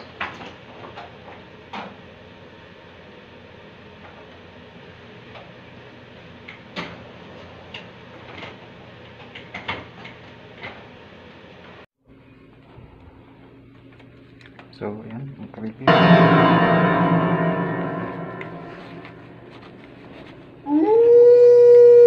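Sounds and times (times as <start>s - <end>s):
steady room hum: 12.1s - 20.7s.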